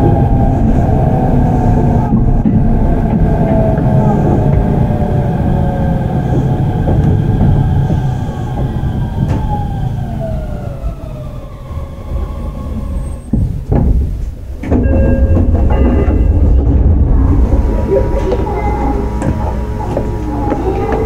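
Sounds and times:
train wheels rumbling on rails: 0.0 - 21.0
train motor whine: 15.2 - 21.0.

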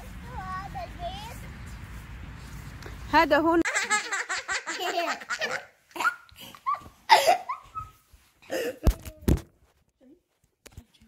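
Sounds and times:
child giggling: 3.6 - 9.0.

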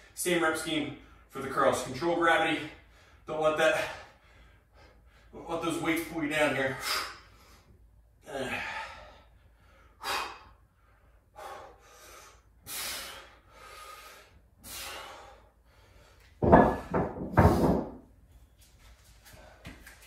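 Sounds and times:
person breathing hard: 8.4 - 16.2.

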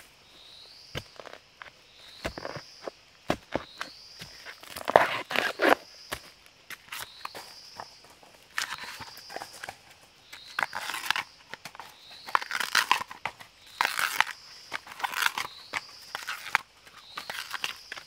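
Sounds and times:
husk tearing off bamboo shoot: 4.3 - 5.8, 10.6 - 18.0.

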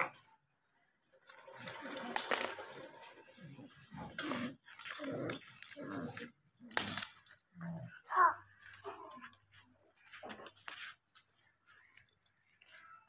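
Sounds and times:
plastic rattle shaken on paving: 1.3 - 3.0, 3.8 - 7.3.

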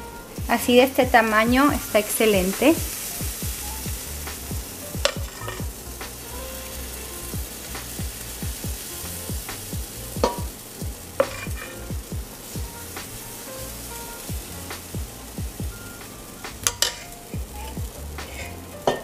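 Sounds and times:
background music with steady beat: 0.0 - 19.0
batter sizzling in a pan: 0.0 - 19.0
metal spoon scraping a bowl: 11.2 - 11.8.

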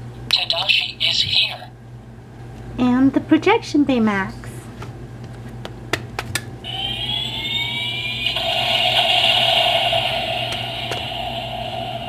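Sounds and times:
toy whine rising in pitch: 6.6 - 12.0
steady rushing noise: 8.3 - 12.0.

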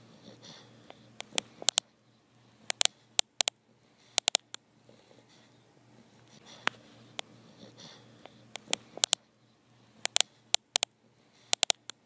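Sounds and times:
dog snoring softly: 0.0 - 1.1, 7.4 - 8.4
sharp clicks and crackles: 1.2 - 1.9, 2.7 - 3.6, 8.5 - 9.2, 10.0 - 10.9, 11.5 - 12.0.

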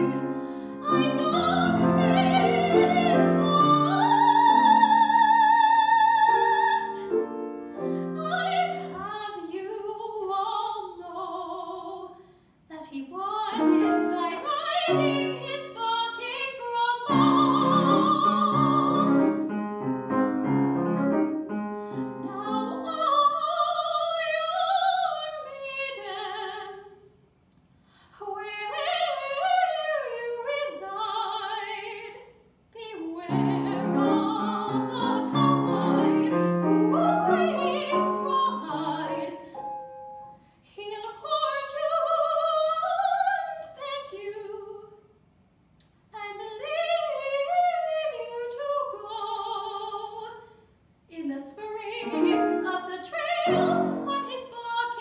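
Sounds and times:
grand piano accompaniment: 0.0 - 9.1, 17.1 - 22.9, 33.3 - 40.4, 52.0 - 54.4
soprano singing: 0.0 - 27.2, 28.2 - 45.0, 46.2 - 50.4, 51.1 - 55.0.

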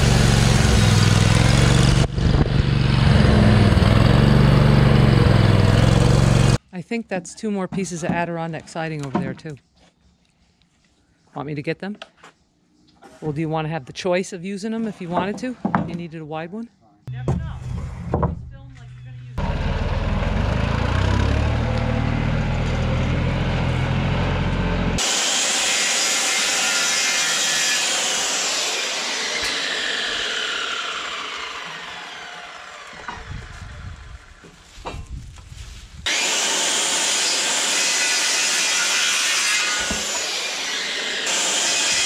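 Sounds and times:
power saw cutting wood: 0.0 - 6.6, 19.4 - 34.5, 36.1 - 42.0
saw blade whining down: 0.0 - 6.6, 19.4 - 34.4, 36.1 - 42.0.

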